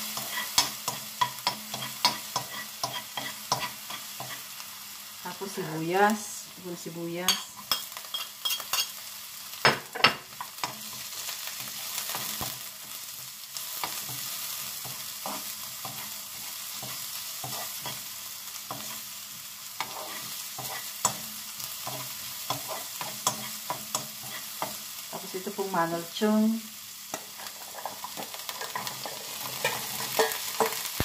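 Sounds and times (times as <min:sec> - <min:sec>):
spatula scraping a pan: 0:00.0 - 0:04.6, 0:07.3 - 0:09.0, 0:13.7 - 0:19.2, 0:19.8 - 0:24.8, 0:27.1 - 0:31.0
onion and garlic sizzling in oil: 0:00.0 - 0:31.0.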